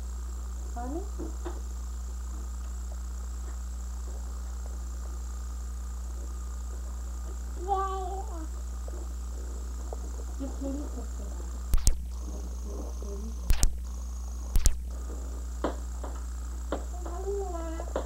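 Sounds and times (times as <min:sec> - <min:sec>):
electrical hum: 0:00.0 - 0:18.0
sharp double clicks: 0:11.7 - 0:12.2, 0:13.5 - 0:13.9, 0:14.5 - 0:14.9.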